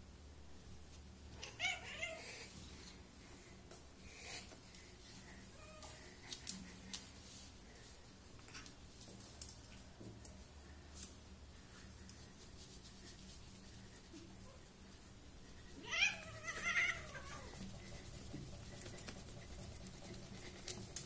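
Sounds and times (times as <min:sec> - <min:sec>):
cat meowing: 0:01.4 - 0:02.4, 0:15.8 - 0:17.6.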